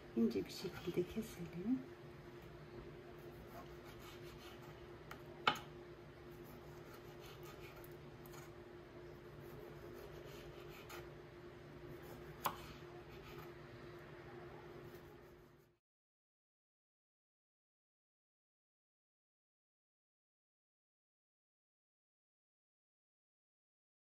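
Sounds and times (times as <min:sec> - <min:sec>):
faint hum: 0:00.0 - 0:15.8
knife slicing on cutting board: 0:12.0 - 0:13.5.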